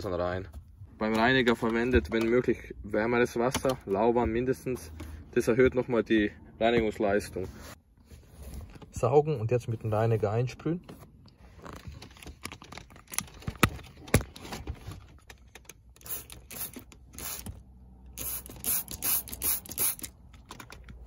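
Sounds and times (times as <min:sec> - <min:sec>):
spray bottle spritzing: 0:16.0 - 0:17.5, 0:18.2 - 0:20.1.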